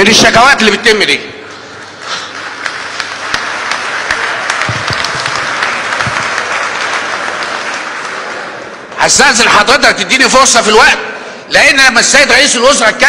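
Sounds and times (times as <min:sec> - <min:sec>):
crowd applauding: 0:01.8 - 0:09.1.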